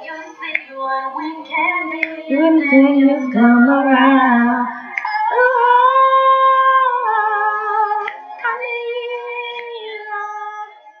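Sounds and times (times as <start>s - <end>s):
woman singing slow melody: 0.0s - 11.0s.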